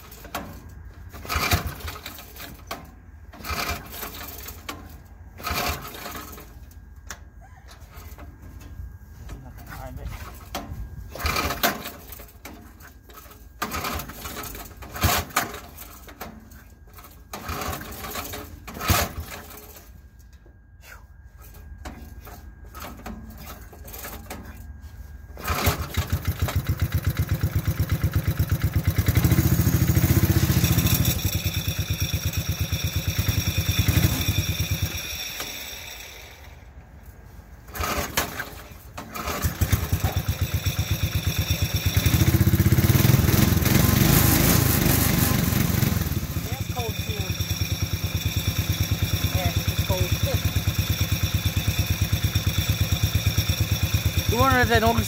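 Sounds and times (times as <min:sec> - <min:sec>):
mower engine running: 0:00.0 - 0:06.8, 0:07.8 - 0:20.1, 0:21.4 - 0:55.0
recoil pull cord pulls: 0:00.0 - 0:07.2, 0:10.2 - 0:19.9, 0:25.4 - 0:27.9, 0:37.7 - 0:55.0.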